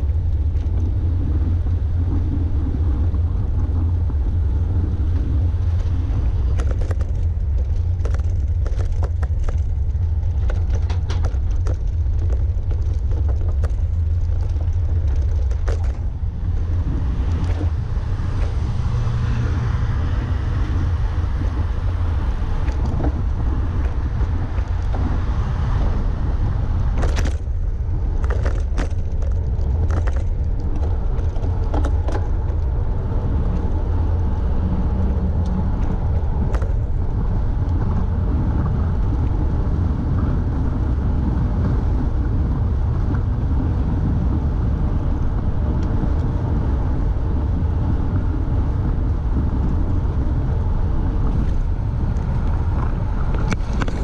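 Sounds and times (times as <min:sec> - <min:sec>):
highway traffic: 0:00.0 - 0:54.0
wind buffeting microphone: 0:00.0 - 0:54.0.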